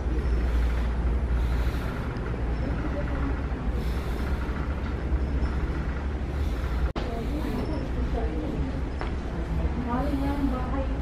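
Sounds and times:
faint indistinct voices: 0.0s - 11.0s
indoor store rumble: 0.0s - 11.0s.

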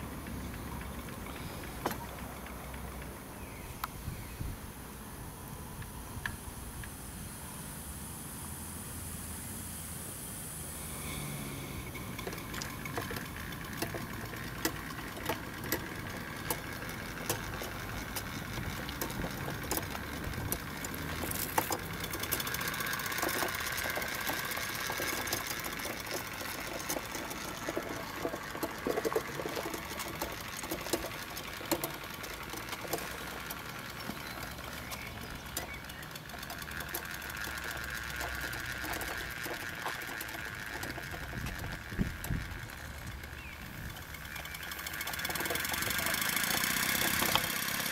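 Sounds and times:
steam engine exhaust beats: 0.0s - 47.9s
sharp mechanical clicks: 10.6s - 47.9s.

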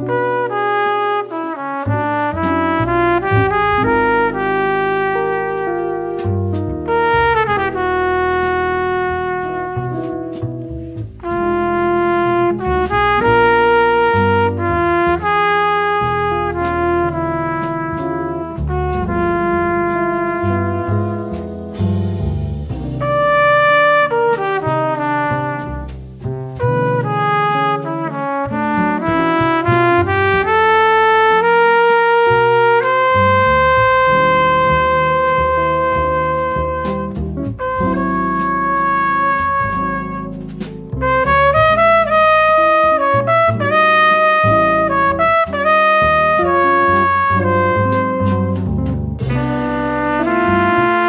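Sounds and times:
bass: 0.0s - 51.0s
trumpet melody: 0.0s - 51.0s
drums with cymbal strokes: 14.1s - 41.3s, 47.8s - 51.0s.

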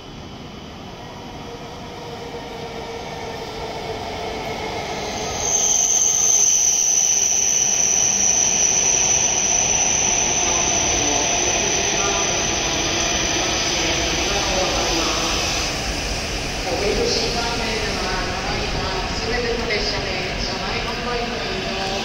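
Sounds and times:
train running noise with whine: 0.0s - 22.0s
high brake squeal: 5.0s - 12.5s.

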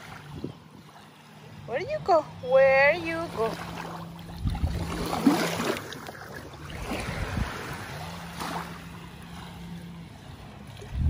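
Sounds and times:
surf: 0.0s - 11.0s
wind noise on microphone: 0.2s - 0.8s, 4.2s - 5.4s, 6.7s - 7.9s, 10.8s - 11.0s.

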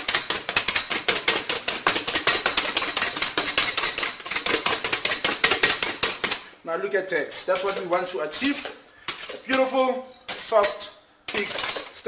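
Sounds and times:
whisk beating in a metal bowl: 0.0s - 6.5s.

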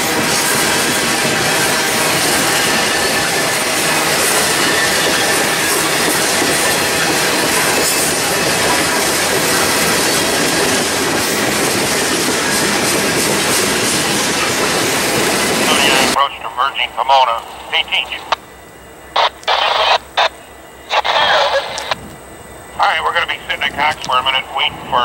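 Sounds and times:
train wheels rumbling on rails: 0.0s - 16.2s, 21.4s - 25.0s.

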